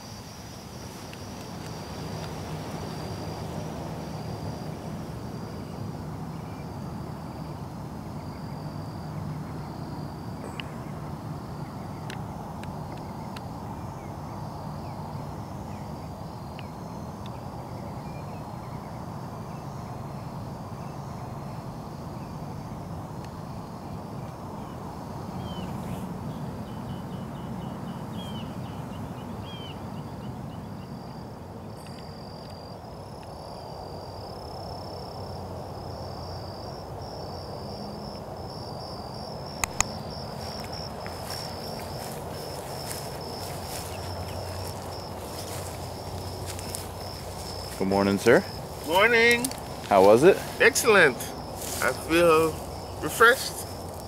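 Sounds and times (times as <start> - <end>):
crickets chirping: 0.0 - 54.0
sharp clicks: 39.6 - 39.9.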